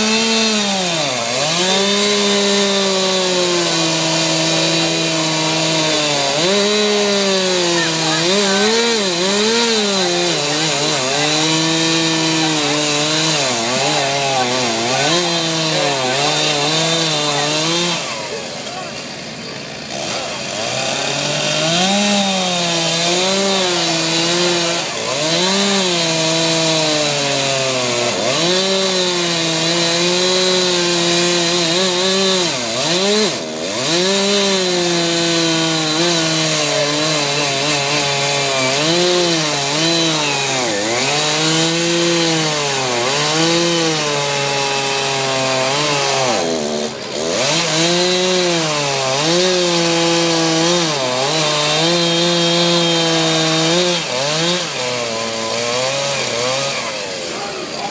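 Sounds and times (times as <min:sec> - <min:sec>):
chainsaw cutting into a log: 0:00.0 - 0:57.9.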